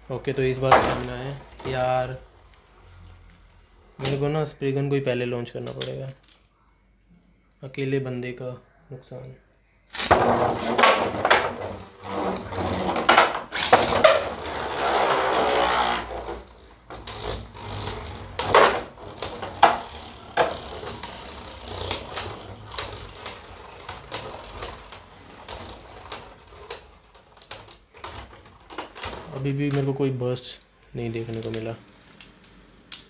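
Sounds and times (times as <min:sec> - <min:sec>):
spinning tops clicking and clacking: 0:17.7 - 0:27.6.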